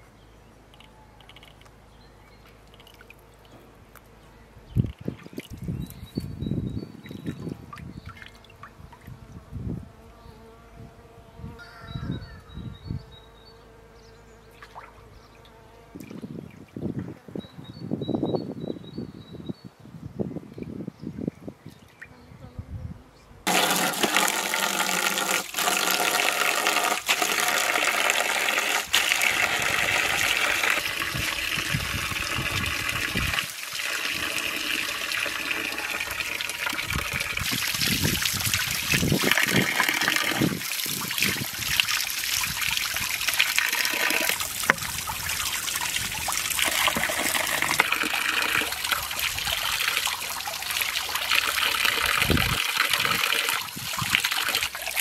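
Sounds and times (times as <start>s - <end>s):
water pouring from a hose: 23.5s - 55.0s.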